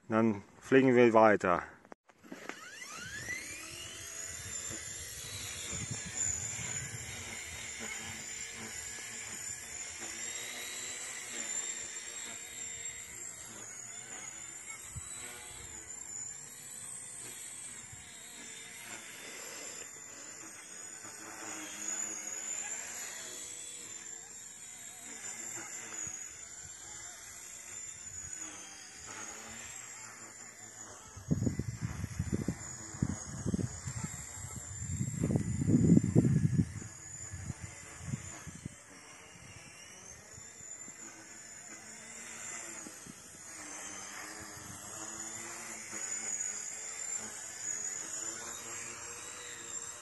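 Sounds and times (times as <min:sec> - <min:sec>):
rc helicopter rotor whining: 0:00.0 - 0:50.0.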